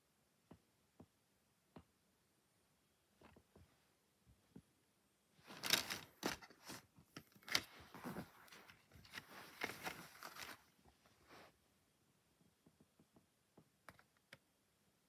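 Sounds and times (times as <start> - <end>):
plastic case crackling and clicking: 5.5 - 7.7.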